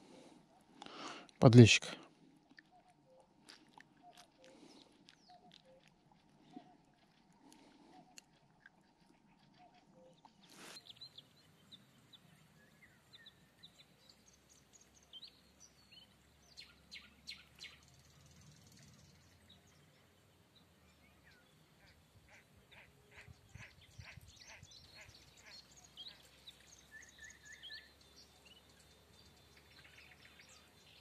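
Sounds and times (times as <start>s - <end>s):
faint waterside ambience: 0.0s - 31.0s
bird chirps and calls: 20.9s - 31.0s.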